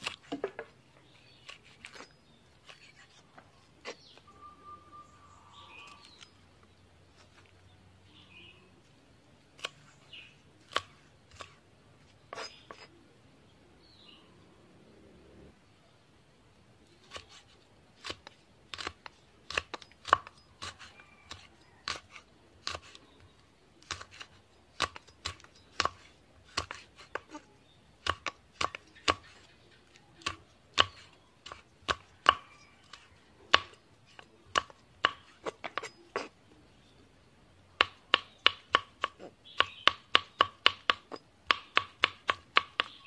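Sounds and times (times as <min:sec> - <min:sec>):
knife chopping on wooden board: 0:00.0 - 0:00.7, 0:23.8 - 0:27.4, 0:28.0 - 0:29.3, 0:30.2 - 0:36.3, 0:37.8 - 0:43.0.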